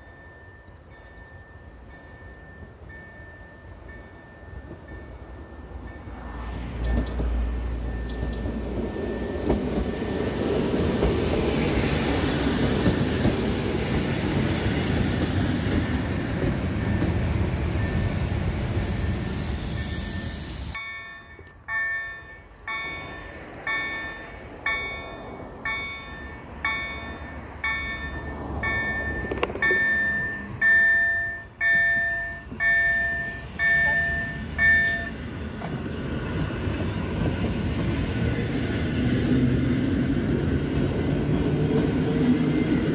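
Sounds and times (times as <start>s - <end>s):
train wheels rumbling on rail: 0.0s - 42.9s
high wheel squeals: 6.9s - 20.8s
ringing signal: 18.8s - 35.2s.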